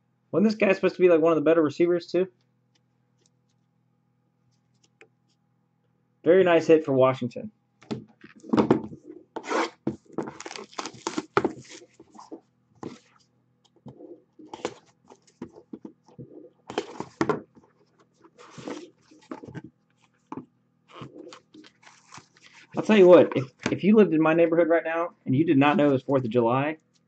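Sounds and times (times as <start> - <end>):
cardboard scraping and sliding: 8.4 - 13.2, 18.0 - 19.7, 20.9 - 23.6
knife cutting cardboard: 9.3 - 13.1.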